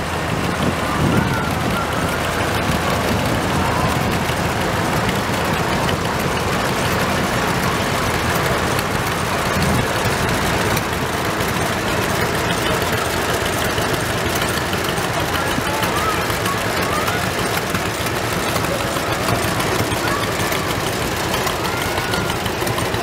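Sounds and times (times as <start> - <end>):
tractor engines chugging: 0.0 - 23.0.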